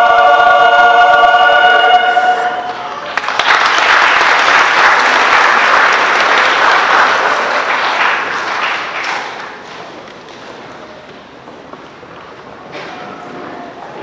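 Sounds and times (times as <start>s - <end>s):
audience applauding: 2.8s - 9.8s.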